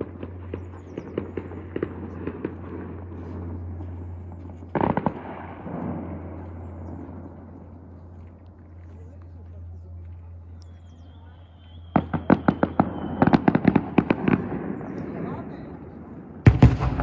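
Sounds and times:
loud firework bangs: 0.0s - 7.6s, 11.8s - 15.6s, 16.2s - 17.0s
small firework pops: 4.7s - 5.8s, 12.0s - 15.1s.

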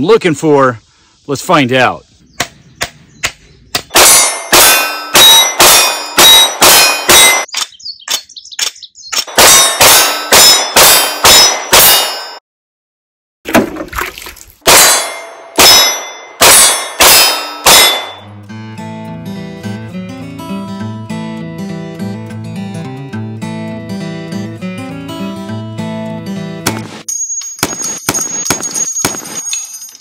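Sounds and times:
handgun shots: 3.8s - 12.3s, 14.7s - 18.2s
steel plate target ringing: 3.9s - 7.5s, 9.3s - 12.4s, 14.6s - 18.3s, 27.1s - 30.0s.

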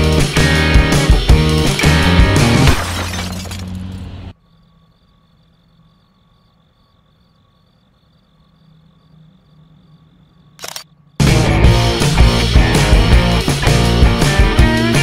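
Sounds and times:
rock music: 0.0s - 2.8s, 11.2s - 15.0s
insect chirring: 4.3s - 11.2s.

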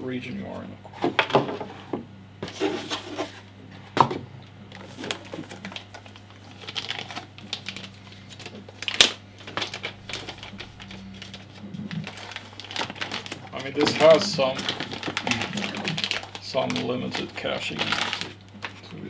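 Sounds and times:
plastic bag crinkling: 4.7s - 19.0s.

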